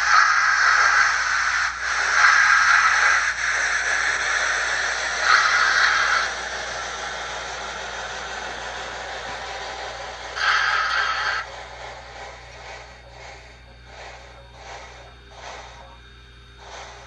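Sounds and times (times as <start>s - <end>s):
simulated steam hiss from speakers: 0.0s - 17.0s.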